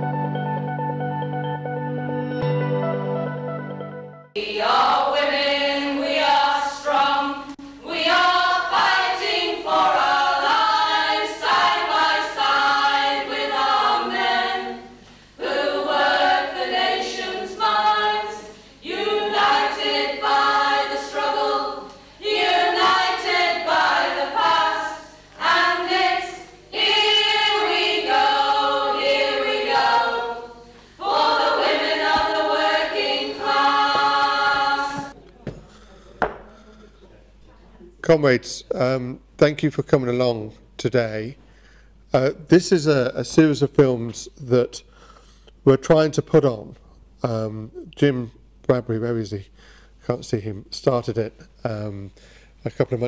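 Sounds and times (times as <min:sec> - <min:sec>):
choir singing: 0:04.3 - 0:35.2.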